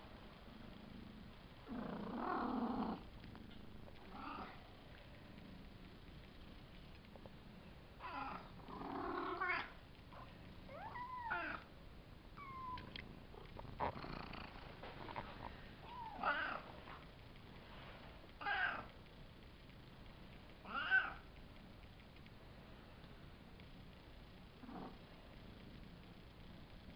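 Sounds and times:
kittens meowing: 10.7 - 11.7, 12.4 - 13.0.

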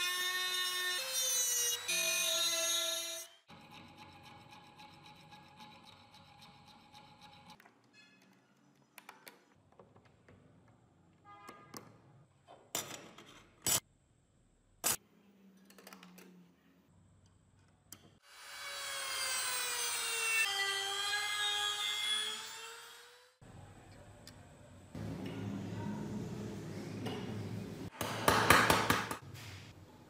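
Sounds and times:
metal rubbing: 3.5 - 8.4.

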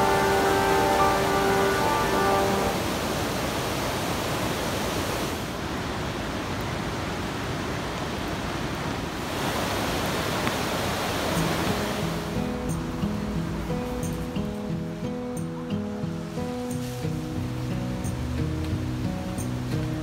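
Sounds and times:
background music with sustained notes: 0.0 - 3.1, 11.4 - 20.0
rushing water: 0.0 - 20.0.

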